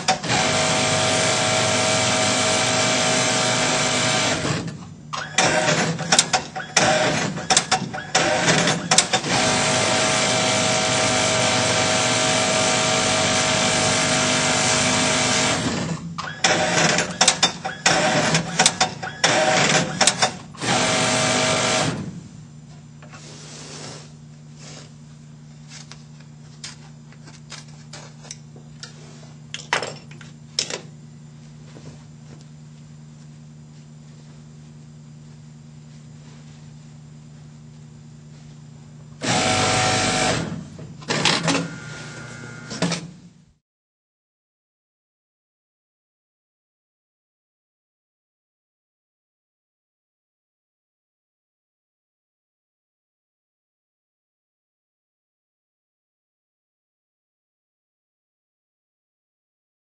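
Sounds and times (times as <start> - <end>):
industrial sewing machine stitching: 0.0 - 22.1, 39.2 - 43.1.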